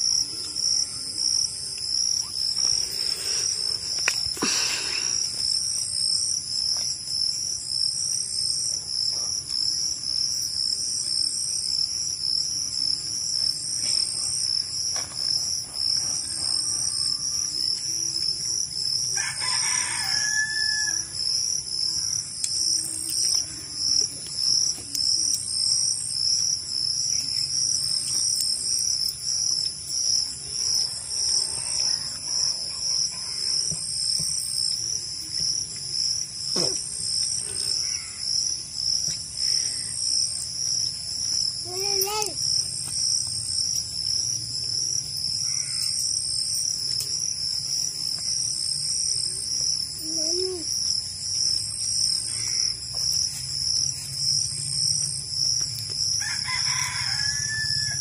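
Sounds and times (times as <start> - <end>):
crickets chirping: 0.0 - 58.0
high insect trill: 0.0 - 58.0
rooster crowing: 19.1 - 21.2, 56.2 - 58.0.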